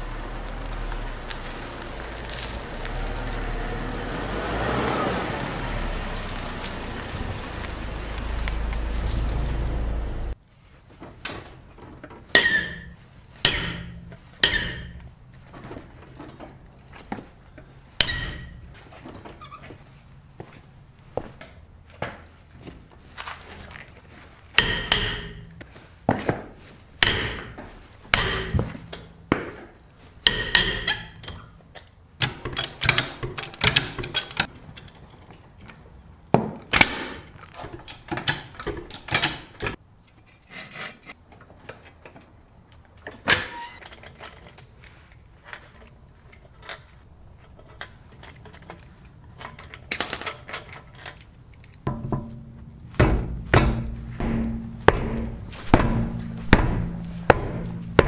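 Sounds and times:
thunks of things being handled: 10.9s - 40.3s, 41.2s - 58.0s.

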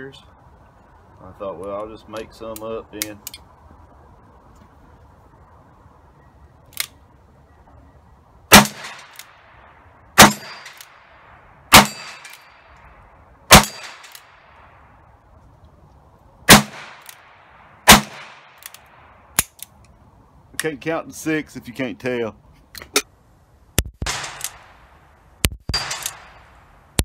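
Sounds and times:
revolver gunshots with echo: 8.5s - 9.4s, 10.2s - 11.0s, 11.7s - 12.5s, 13.5s - 14.3s, 16.5s - 17.1s, 17.8s - 18.6s, 24.0s - 24.8s, 25.7s - 26.5s.

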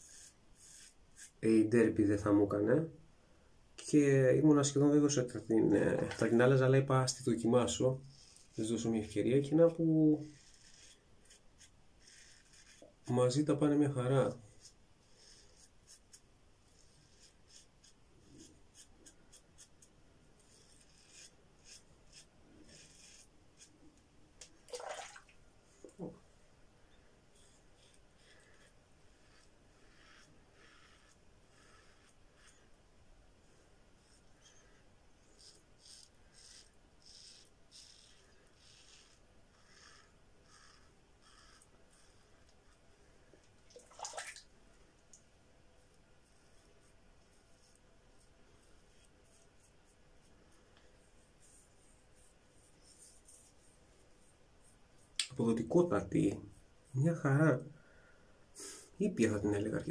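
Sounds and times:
razor scraping stubble: 0.0s - 1.4s, 5.4s - 13.8s, 14.5s - 23.8s, 27.3s - 32.7s, 34.0s - 42.8s.

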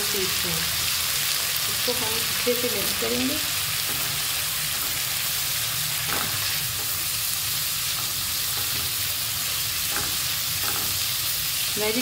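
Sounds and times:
vegetables sizzling in a pan: 0.0s - 12.0s
spatula knocking on pan: 9.8s - 11.0s.

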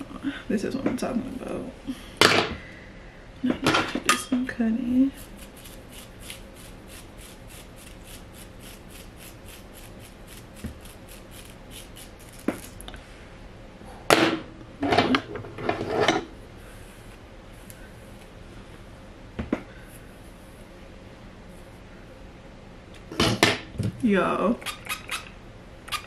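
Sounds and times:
comb rasping through hair: 5.2s - 12.8s.

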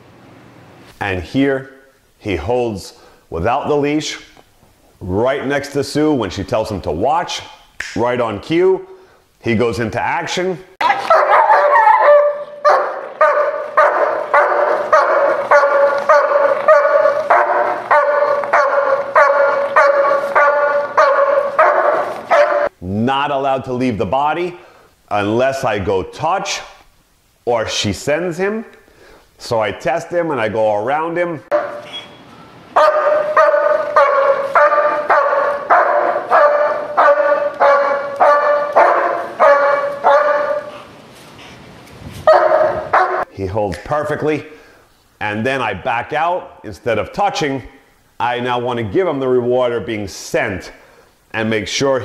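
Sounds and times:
dog barking rapidly: 10.8s - 22.7s, 31.4s - 40.9s, 42.2s - 43.3s.

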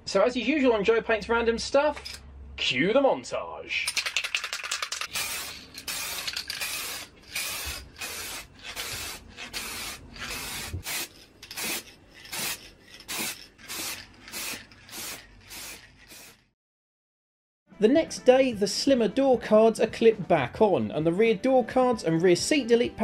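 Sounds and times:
aerosol spray can hissing: 5.0s - 16.4s.

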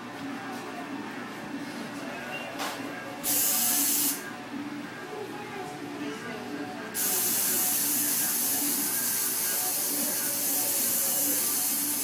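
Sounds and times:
loud steady hiss: 3.2s - 4.2s, 7.0s - 12.0s.

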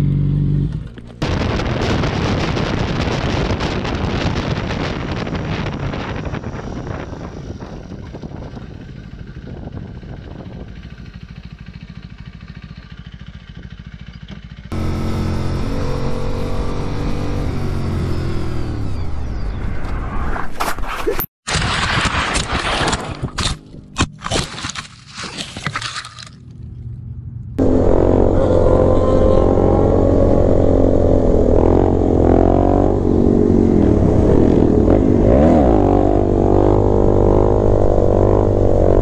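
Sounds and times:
motorcycle engine running: 0.0s - 1.5s, 2.6s - 19.4s, 26.6s - 39.0s
wind and road rushing noise: 0.7s - 11.4s, 26.6s - 39.0s.

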